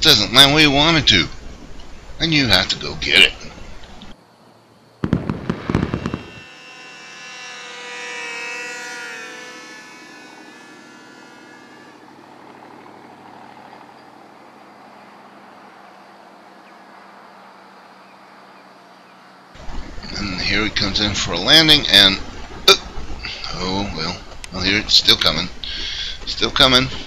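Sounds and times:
fireworks crackling: 5.0 - 12.0
model airplane engine drone: 5.7 - 27.0.

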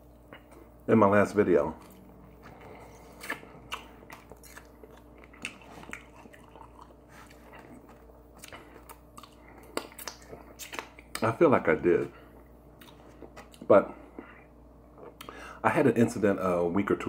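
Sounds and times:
person chewing crispy food: 1.5 - 11.3, 12.3 - 15.4.

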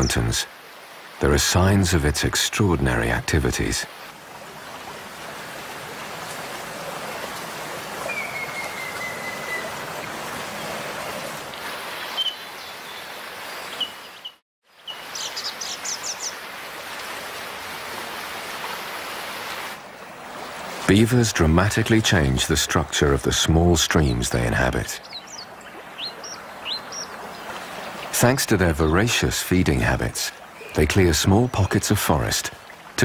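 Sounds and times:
stream water running: 0.0 - 33.0
birds calling: 8.0 - 16.4, 22.4 - 29.3, 29.9 - 33.0.

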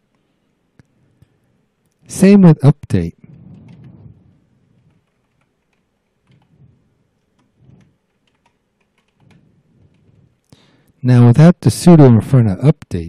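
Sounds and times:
keyboard typing: 3.2 - 10.5.

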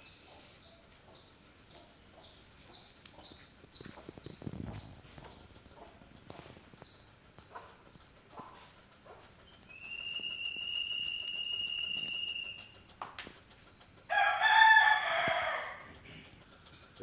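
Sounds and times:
rooster crowing: 14.1 - 16.0.

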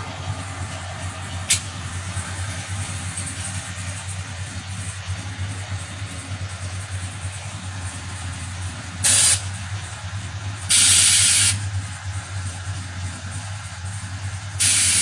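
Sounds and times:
steady low hum: 0.0 - 15.0
air suspension hissing: 1.4 - 3.9, 9.0 - 9.6, 10.7 - 11.8, 14.5 - 15.0.

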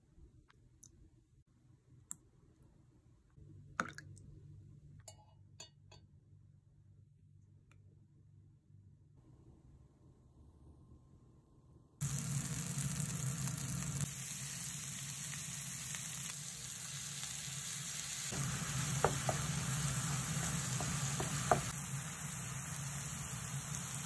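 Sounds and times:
meat sizzling in a pan: 12.0 - 24.0.

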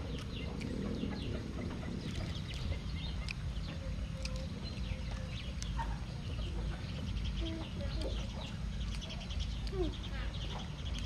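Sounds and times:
chickens clucking: 0.0 - 11.0
steady low rumble: 0.0 - 11.0
small chirps: 2.0 - 6.1, 7.0 - 11.0.

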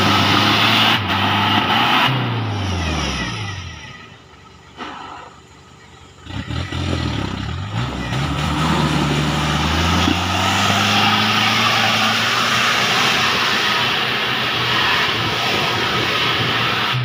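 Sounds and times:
car engine revving under load: 6.1 - 17.0.

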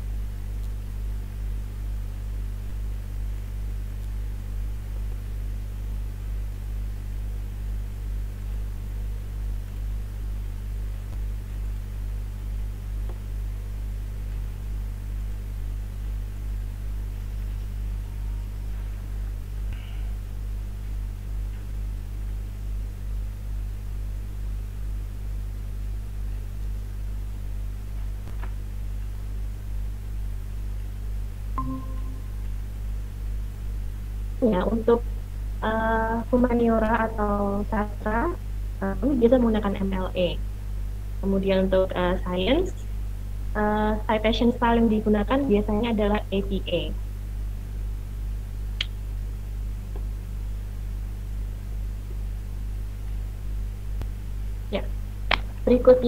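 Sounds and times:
low electrical hum: 0.0 - 56.0.

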